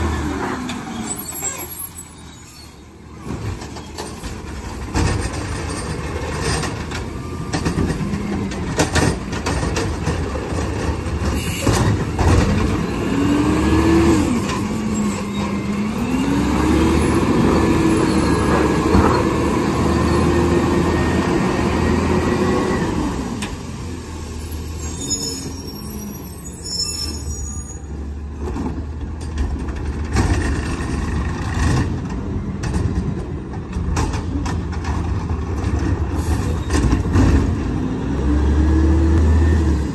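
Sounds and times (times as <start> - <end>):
truck engine revving: 12.5 - 23.0, 37.3 - 39.9
tires on wet pavement: 34.8 - 39.9.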